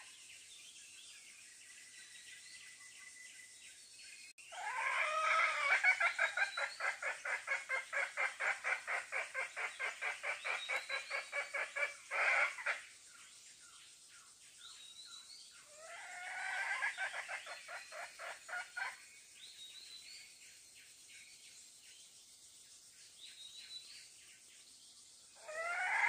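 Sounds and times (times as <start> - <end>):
junglefowl clucking: 4.6 - 12.8, 15.8 - 19.0, 25.4 - 26.0.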